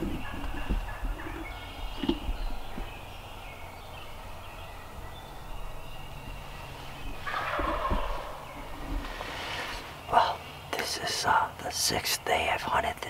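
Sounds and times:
turkey gobbling: 0:00.0 - 0:02.1, 0:07.2 - 0:09.8.

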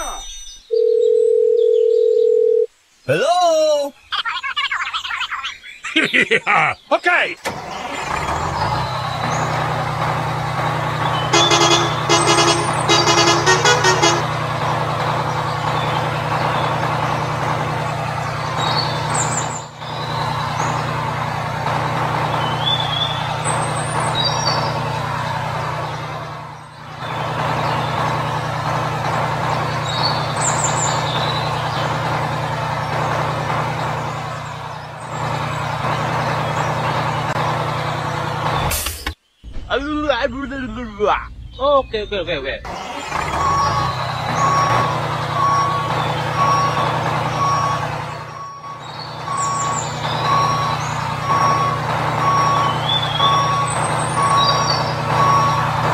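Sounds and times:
truck engine running: 0:07.4 - 0:55.9
horn tooting short blasts: 0:11.2 - 0:14.5.

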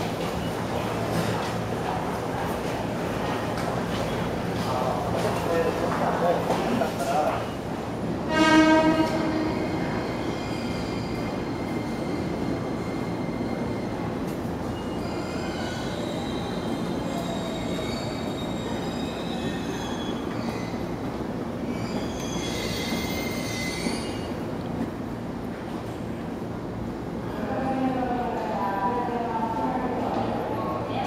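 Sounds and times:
train rumble: 0:00.0 - 0:31.0
train wheel squeal: 0:08.4 - 0:24.5.

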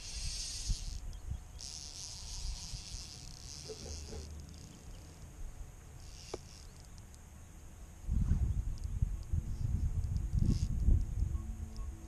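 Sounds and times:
fly reel ratchet buzzing: 0:00.0 - 0:05.3, 0:05.9 - 0:07.2, 0:08.7 - 0:11.9
wind rumbling on microphone: 0:08.0 - 0:12.0.

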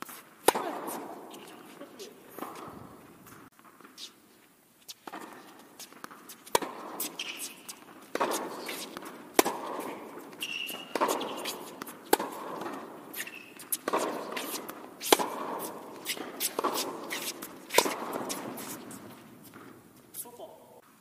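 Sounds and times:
racket hitting tennis ball: 0:00.0 - 0:04.2, 0:04.8 - 0:20.2
tennis ball bouncing: 0:00.0 - 0:04.2, 0:04.9 - 0:20.2
shoe squeak: 0:04.9 - 0:09.0, 0:09.8 - 0:20.2.

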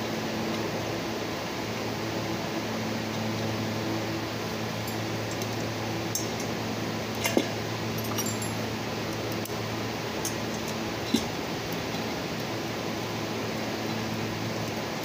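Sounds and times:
metallic clinks of hand tools: 0:08.0 - 0:08.6.

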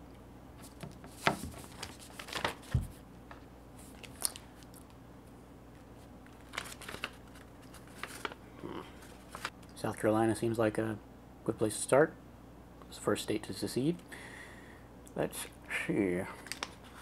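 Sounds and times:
paper rustling: 0:00.6 - 0:04.9, 0:06.3 - 0:09.5, 0:16.4 - 0:17.0.

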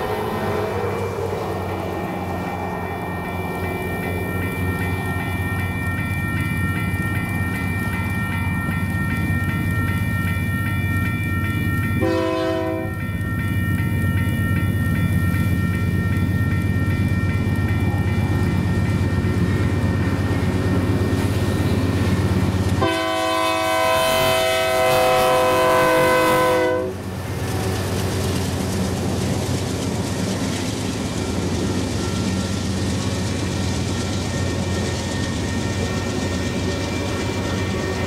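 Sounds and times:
diesel locomotive rumble: 0:00.0 - 0:38.0
train air horn chord: 0:12.0 - 0:13.0, 0:22.8 - 0:27.0.

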